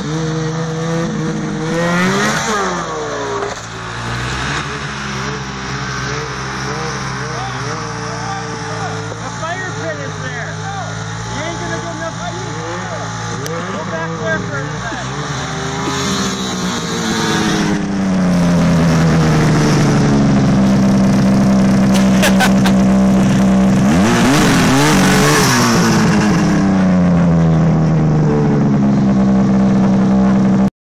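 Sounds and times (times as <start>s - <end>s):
snowmobile engine revving: 0.0s - 30.7s.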